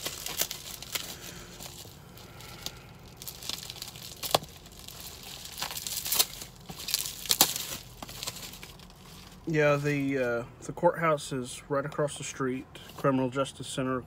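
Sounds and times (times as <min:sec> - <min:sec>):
packaging crinkling and tearing: 0:00.0 - 0:10.2.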